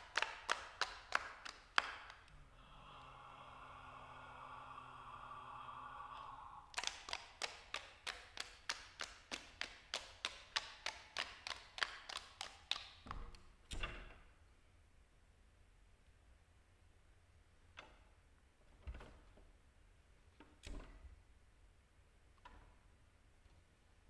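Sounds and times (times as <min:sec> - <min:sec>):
sharp percussive taps: 0:06.8 - 0:13.2.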